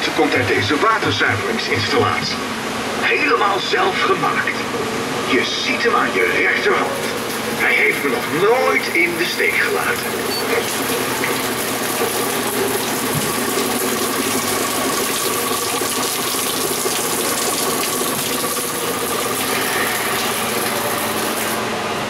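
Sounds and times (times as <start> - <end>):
mechanical pump running: 4.7 - 22.0
water running and splashing: 7.0 - 21.6.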